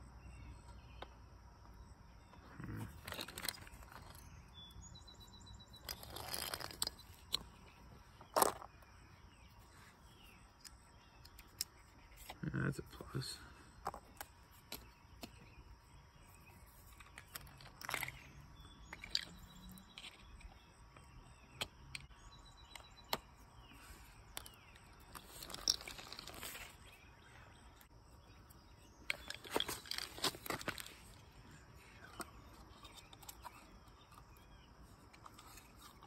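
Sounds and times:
plastic parts clicking and rustling: 2.9s - 4.4s, 5.8s - 8.9s, 16.5s - 27.0s, 28.8s - 36.0s.

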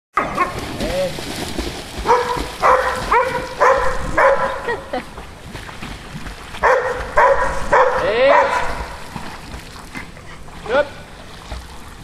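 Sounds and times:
dog yelping: 2.0s - 4.8s, 6.6s - 8.8s.

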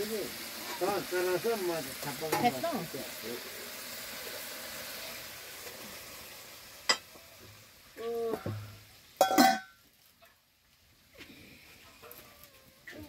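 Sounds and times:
curry sizzling in a pan: 0.0s - 13.0s
metal cookware clanking: 8.3s - 9.8s.

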